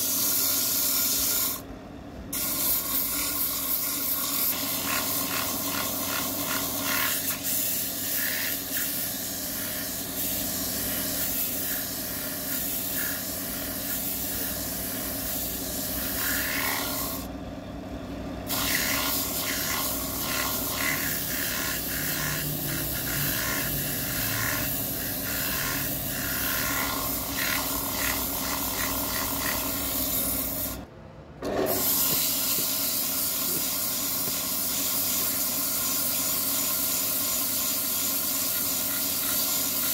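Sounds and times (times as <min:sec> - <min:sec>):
tool scraping spinning wood: 0:02.4 - 0:17.3, 0:18.5 - 0:30.8
wood lathe running: 0:04.4 - 0:07.4, 0:15.8 - 0:17.3, 0:18.5 - 0:30.8.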